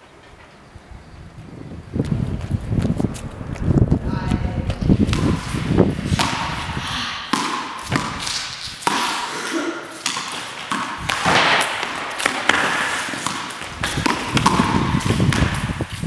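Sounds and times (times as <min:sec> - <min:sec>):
footsteps on tiled floor echoing: 0:06.9 - 0:16.0.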